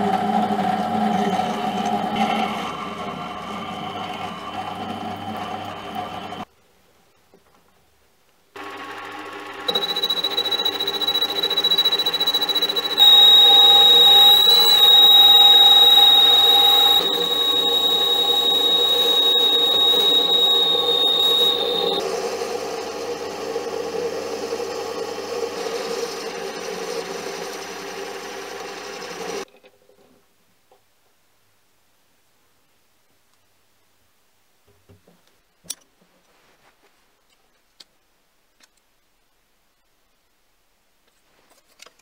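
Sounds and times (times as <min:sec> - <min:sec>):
lathe motor and metal cutting: 0:08.6 - 0:29.4
high-pitched squeal: 0:09.7 - 0:22.0.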